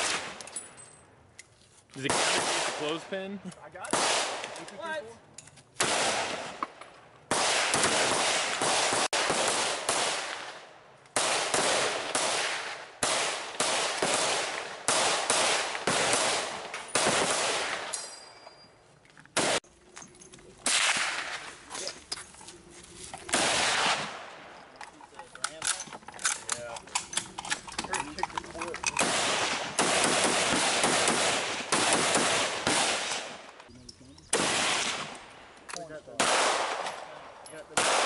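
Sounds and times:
rifle gunfire: 0:02.0 - 0:03.0, 0:03.9 - 0:04.6, 0:05.8 - 0:06.6, 0:07.3 - 0:10.6, 0:11.2 - 0:17.9, 0:19.4 - 0:19.6, 0:20.6 - 0:21.5, 0:23.3 - 0:24.5, 0:29.0 - 0:33.5, 0:34.3 - 0:35.2, 0:36.2 - 0:38.0.

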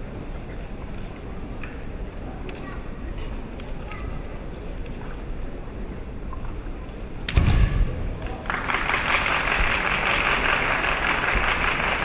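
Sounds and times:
bamboo sword strike crack: 0:07.3 - 0:08.2
crowd applauding: 0:08.2 - 0:12.0.

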